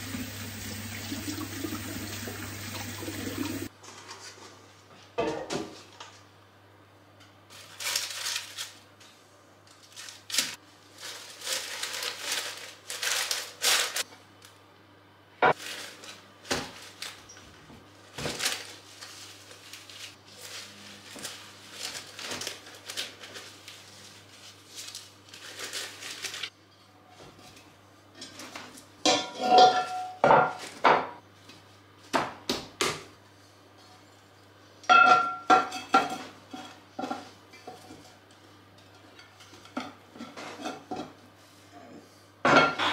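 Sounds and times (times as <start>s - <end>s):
leaves and stalks rustling: 7.5s - 8.8s, 9.8s - 14.0s, 15.6s - 26.5s.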